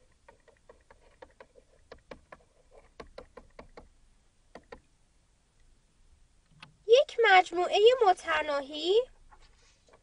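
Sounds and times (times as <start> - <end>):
stylus tapping on tablet: 0.2 - 3.9, 4.5 - 4.9.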